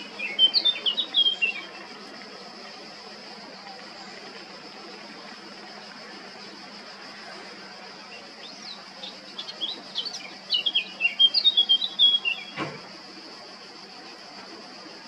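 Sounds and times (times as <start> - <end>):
bird warbling song: 0.0 - 1.8, 8.2 - 12.6
steady high hiss: 0.0 - 15.0.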